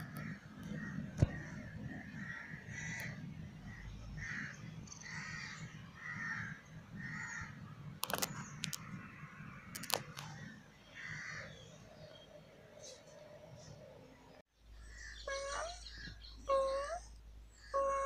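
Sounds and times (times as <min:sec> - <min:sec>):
crow cawing: 0:00.0 - 0:07.6, 0:10.4 - 0:11.6
sharp clicks: 0:08.0 - 0:08.9, 0:09.7 - 0:10.3.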